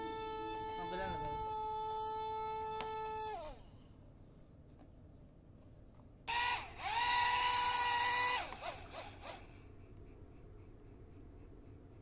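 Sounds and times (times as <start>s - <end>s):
drone motor whining: 0.0s - 3.6s, 6.3s - 9.4s.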